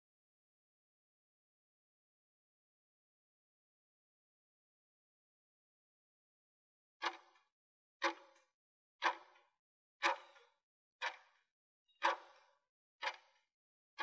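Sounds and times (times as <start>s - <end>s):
clock-like ticks with short ring: 7.0s - 13.5s.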